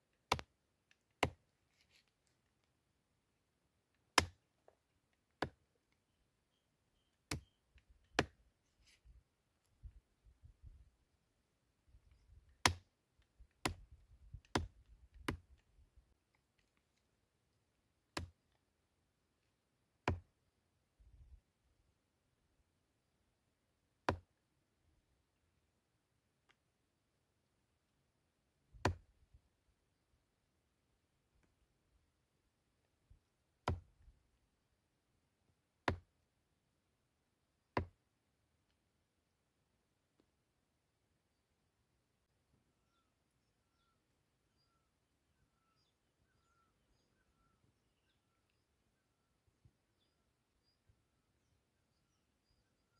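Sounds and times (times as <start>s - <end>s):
knife chopping on wooden stump: 0.3s - 0.5s, 1.2s - 1.4s, 7.3s - 7.5s, 8.2s - 8.4s, 12.6s - 12.8s, 14.5s - 15.4s, 20.0s - 20.2s, 28.8s - 29.0s, 33.6s - 33.9s, 35.8s - 36.0s.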